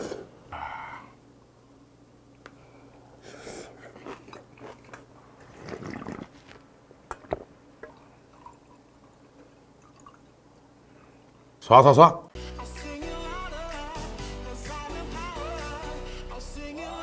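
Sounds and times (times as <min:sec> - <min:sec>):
slurping broth: 0:03.2 - 0:08.8
chewing: 0:03.3 - 0:10.2.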